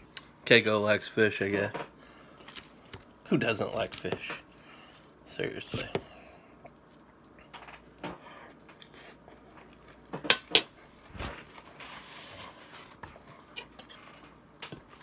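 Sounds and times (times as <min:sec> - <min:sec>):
paper napkin rustling: 0:10.9 - 0:13.0.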